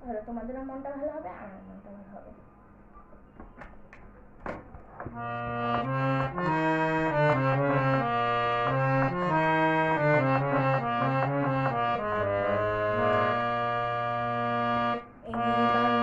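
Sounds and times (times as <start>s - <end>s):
harmonium playing a tune: 5.1s - 16.0s.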